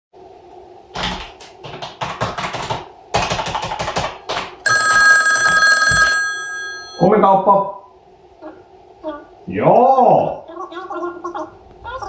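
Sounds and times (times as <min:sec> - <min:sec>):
typing on computer keyboard: 0:01.0 - 0:04.7
mobile phone ringtone: 0:04.7 - 0:07.1.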